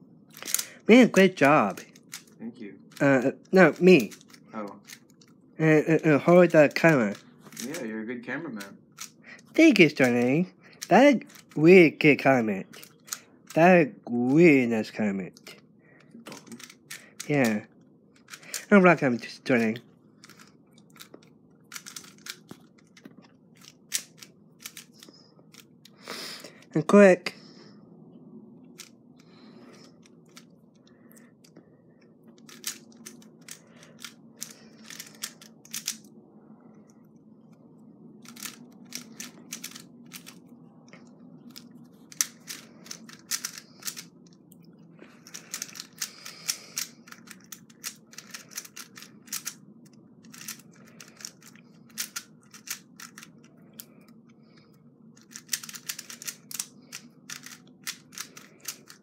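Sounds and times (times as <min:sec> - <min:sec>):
rubik's cube clicking: 0:00.4 - 0:02.3, 0:16.4 - 0:17.4, 0:18.2 - 0:18.7, 0:20.2 - 0:25.7, 0:32.4 - 0:36.1, 0:38.2 - 0:40.4, 0:41.4 - 0:44.1, 0:45.2 - 0:53.9, 0:55.2 - 0:59.0.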